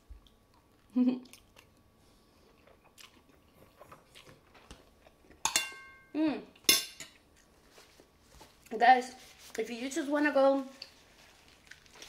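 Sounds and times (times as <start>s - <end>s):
soft chewing: 0.0s - 5.4s, 10.7s - 12.0s
cutlery clinking on ceramic plate: 5.4s - 6.1s.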